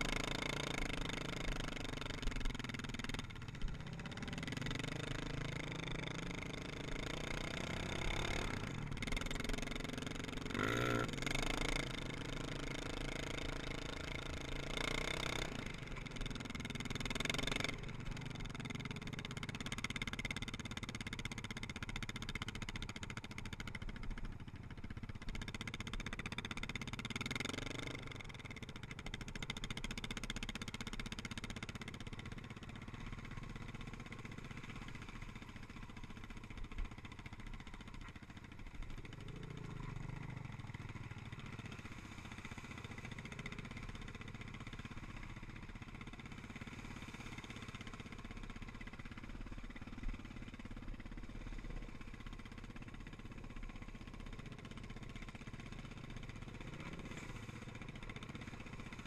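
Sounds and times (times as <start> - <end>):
quad engine revving: 0.0 - 2.2, 3.8 - 17.8, 55.5 - 59.0.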